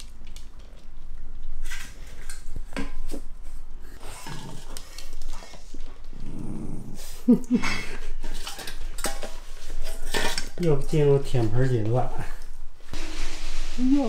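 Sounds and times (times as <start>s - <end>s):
dogs growling low: 3.8s - 8.1s.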